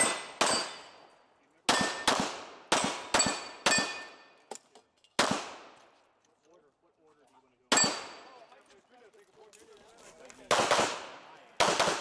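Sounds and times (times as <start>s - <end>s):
pistol shots: 0.0s - 1.0s, 1.6s - 4.3s, 5.2s - 5.8s, 7.7s - 8.4s, 10.4s - 12.0s
steel targets ringing: 0.0s - 2.1s, 3.2s - 4.5s, 7.7s - 8.3s.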